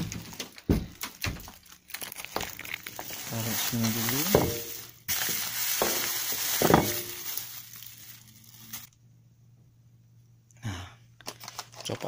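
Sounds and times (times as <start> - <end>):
plastic bags rustling: 0.0 - 9.0, 11.2 - 12.0.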